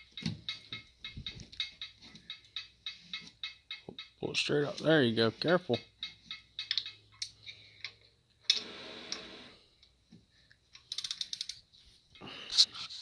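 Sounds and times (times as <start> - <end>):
socket ratchet clicking: 10.8 - 11.6.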